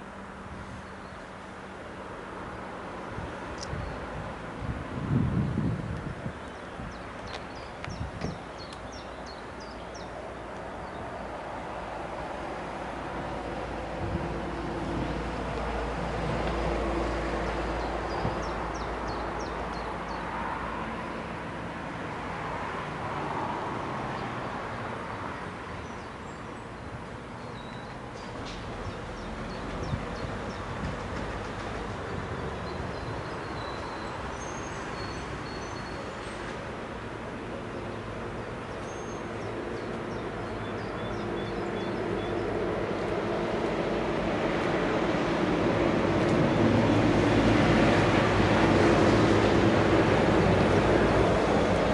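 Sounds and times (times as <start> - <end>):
small birds chirping: 6.3 - 11.2, 27.4 - 30.7, 32.0 - 36.5, 38.6 - 42.6.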